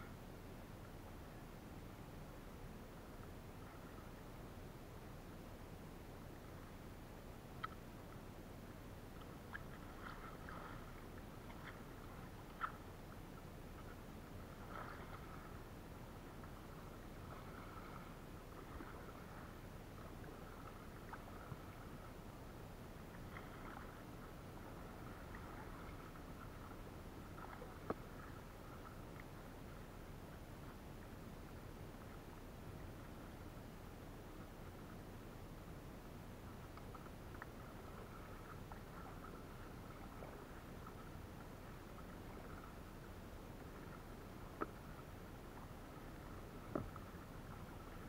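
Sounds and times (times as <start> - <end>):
light ticks: 7.5 - 8.2, 9.1 - 14.0, 27.4 - 29.4, 36.6 - 39.4, 44.4 - 48.0
paddle water splashing and dripping: 7.5 - 33.4, 36.3 - 48.0.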